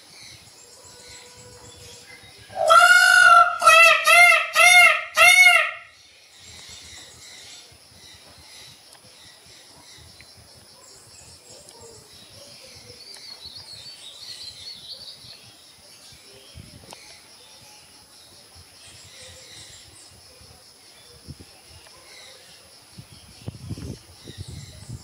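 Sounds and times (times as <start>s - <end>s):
insects droning: 0.0s - 25.0s
small birds chirping: 5.5s - 25.0s.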